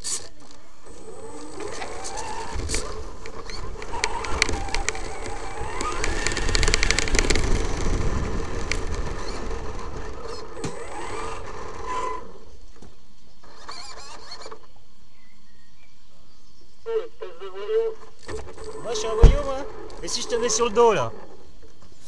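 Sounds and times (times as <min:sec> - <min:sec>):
tyres on dirt and gravel: 0:00.0 - 0:14.8, 0:17.3 - 0:22.0
electric motor whine: 0:00.8 - 0:12.6, 0:17.5 - 0:21.6.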